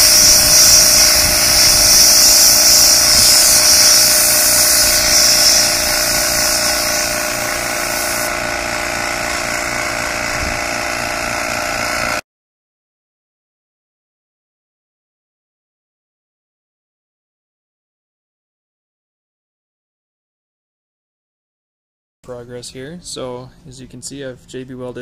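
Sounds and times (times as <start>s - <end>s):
sandblast gun hissing: 0.0s - 12.2s
steady hum: 0.0s - 12.2s.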